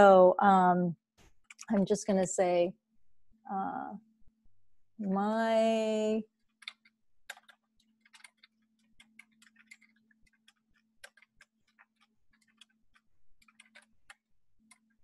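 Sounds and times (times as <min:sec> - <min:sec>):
computer keyboard typing: 0:06.4 - 0:15.0.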